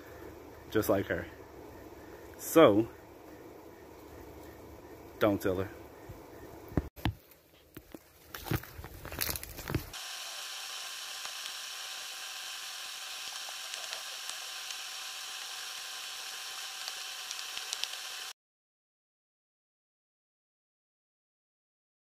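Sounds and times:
rustling handling noise: 0:07.0 - 0:10.0.

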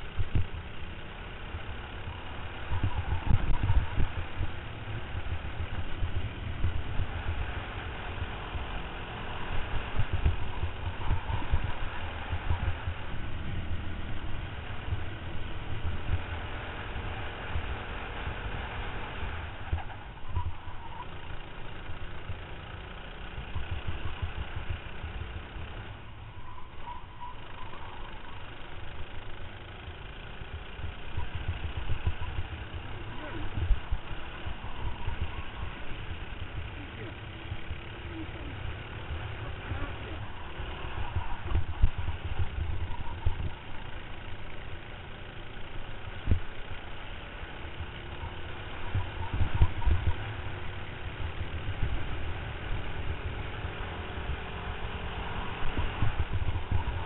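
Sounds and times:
racing kart engine: 0:00.0 - 0:57.0
wind buffeting microphone: 0:02.6 - 0:07.5, 0:39.2 - 0:43.7, 0:55.5 - 0:57.0.

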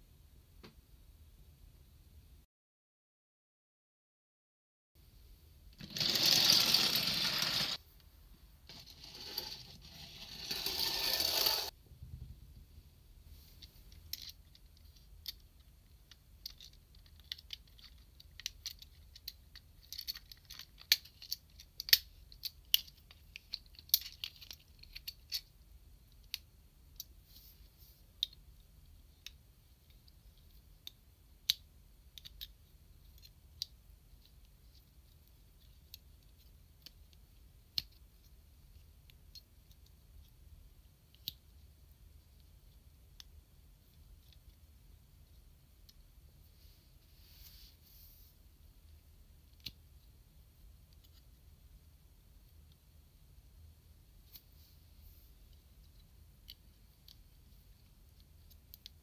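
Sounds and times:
plastic toy parts clicking: 0:13.6 - 0:25.5, 0:30.8 - 0:40.3, 0:49.5 - 0:49.8.

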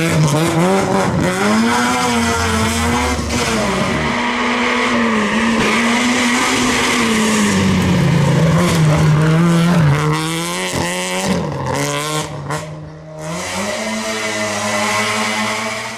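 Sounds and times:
rally car engine at high revs: 0:00.0 - 0:15.9.

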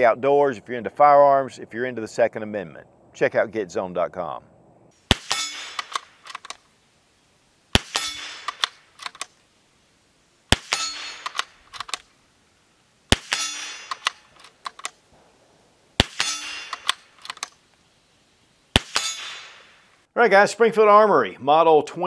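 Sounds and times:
rifle shots: 0:05.0 - 0:06.6, 0:07.7 - 0:09.3, 0:10.5 - 0:12.1, 0:13.1 - 0:15.3, 0:16.0 - 0:17.5, 0:18.7 - 0:19.9
short metallic ring: 0:05.3 - 0:05.8, 0:10.7 - 0:11.3, 0:13.3 - 0:13.9, 0:16.2 - 0:16.8
rifle bolt clicks: 0:05.3 - 0:06.6, 0:08.0 - 0:09.4, 0:10.8 - 0:12.1, 0:13.4 - 0:15.0, 0:16.2 - 0:17.6.

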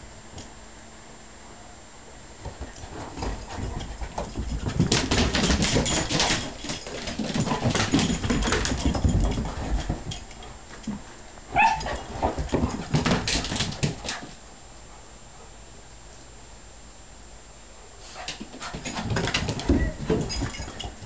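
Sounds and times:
dogs scuffling on floor: 0:02.4 - 0:14.4, 0:18.0 - 0:21.0
dog yelping: 0:11.5 - 0:12.1.

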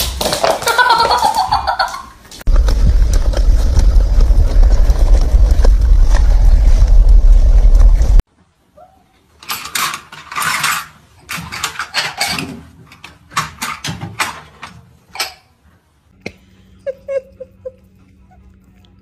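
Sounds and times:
person laughing: 0:00.6 - 0:02.1, 0:16.2 - 0:18.1.

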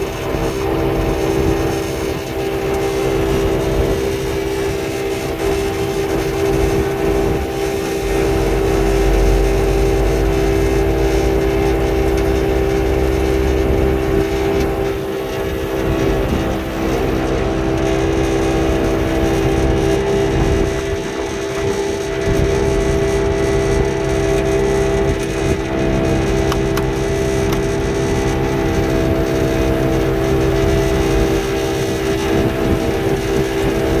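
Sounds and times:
car engine idling: 0:25.2 - 0:30.9.

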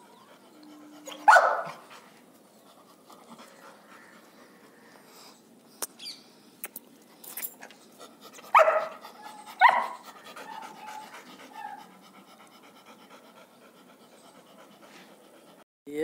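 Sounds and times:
dog barking: 0:01.2 - 0:01.8, 0:08.5 - 0:09.0, 0:09.6 - 0:10.0.

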